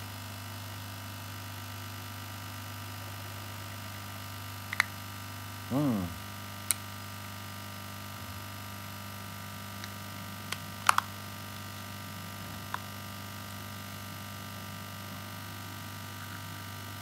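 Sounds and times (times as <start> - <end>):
plastic parts snapping together: 10.8 - 11.1.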